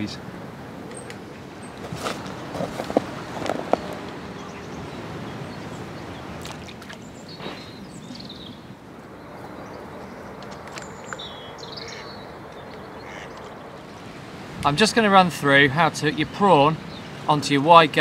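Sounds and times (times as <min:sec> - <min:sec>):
high bird calls: 0:00.9 - 0:14.2.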